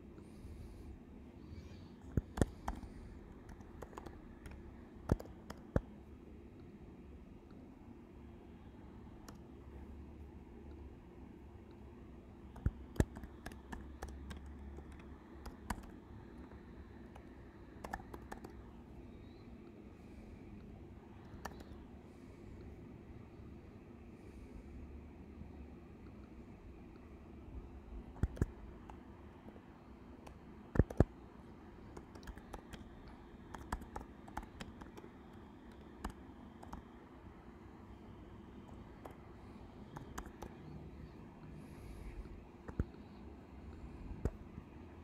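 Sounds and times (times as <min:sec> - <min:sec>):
computer keyboard typing: 0:02.1 - 0:05.9, 0:12.4 - 0:18.9, 0:20.6 - 0:21.8, 0:28.0 - 0:29.1, 0:30.2 - 0:37.1, 0:38.4 - 0:40.7
keyboard key clicks: 0:03.5 - 0:05.9, 0:28.2 - 0:29.0, 0:30.2 - 0:31.1.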